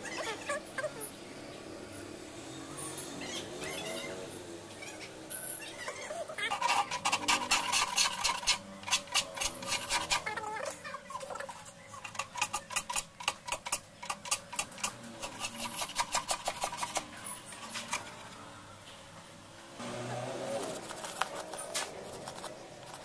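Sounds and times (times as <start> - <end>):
hand plane rasping on wood: 6.5 - 10.4, 12.0 - 17.0.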